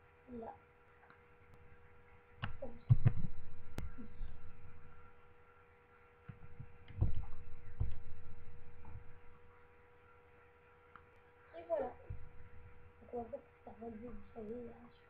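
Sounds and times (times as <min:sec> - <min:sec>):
electrical hum: 0:00.0 - 0:15.0
dull thumps near microphone: 0:02.4 - 0:05.0, 0:06.3 - 0:09.4, 0:12.0 - 0:12.8.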